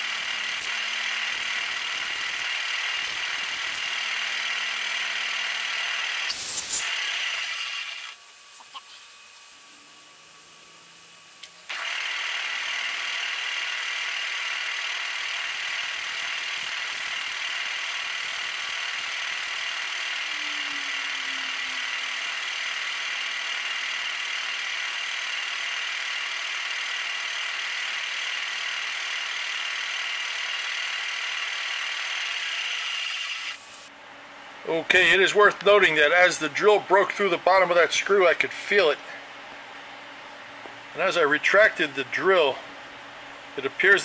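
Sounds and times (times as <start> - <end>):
machine drill running: 0.0 - 8.3, 10.8 - 33.9.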